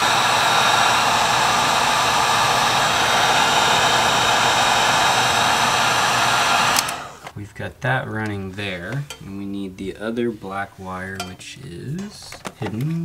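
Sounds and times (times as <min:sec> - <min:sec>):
heat gun blowing air: 0:00.0 - 0:07.4.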